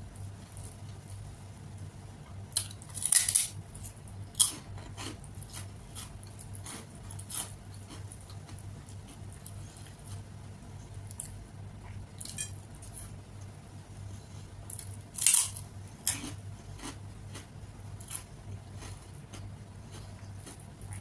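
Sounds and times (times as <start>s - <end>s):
steady low hum: 0.0s - 21.0s
chewing: 4.4s - 10.3s, 14.6s - 21.0s.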